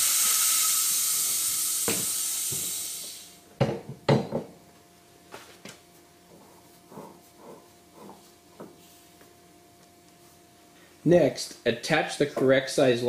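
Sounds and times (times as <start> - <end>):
steady high hiss: 0.0 - 3.5.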